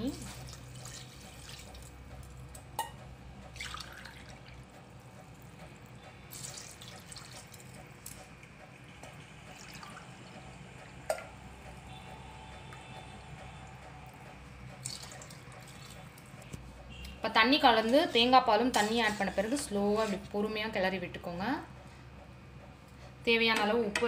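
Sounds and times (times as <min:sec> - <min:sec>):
water pouring into a pot: 0:00.0 - 0:02.0, 0:03.6 - 0:04.6, 0:06.3 - 0:08.2, 0:09.5 - 0:10.4, 0:14.8 - 0:16.0
water splashing and dripping: 0:00.0 - 0:02.7, 0:03.4 - 0:12.0, 0:13.4 - 0:16.5.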